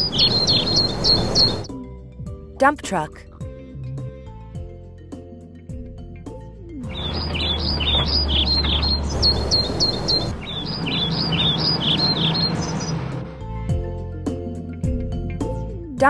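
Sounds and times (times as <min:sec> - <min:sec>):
birds chirping: 0:00.0 - 0:01.7, 0:06.8 - 0:13.4
low steady rumble: 0:06.9 - 0:13.7.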